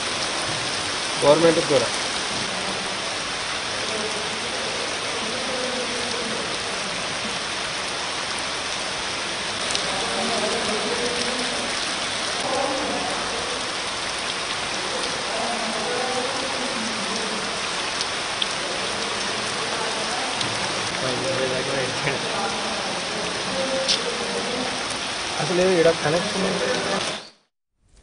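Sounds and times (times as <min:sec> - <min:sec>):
heavy rain on wet ground: 0:00.0 - 0:27.5.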